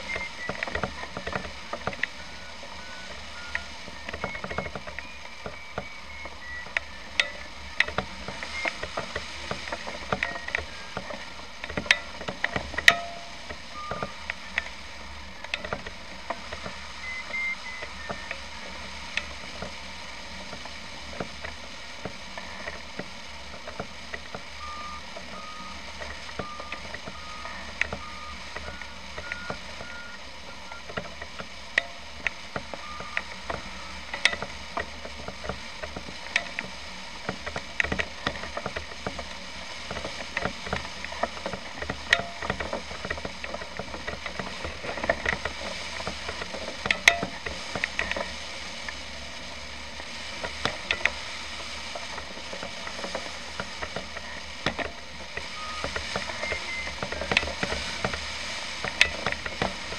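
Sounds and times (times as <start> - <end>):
steady low noise: 0.0 - 59.9
variometer short beeps: 2.3 - 8.9, 12.8 - 14.7, 17.0 - 18.4, 24.6 - 31.0, 32.8 - 34.5, 55.5 - 57.2.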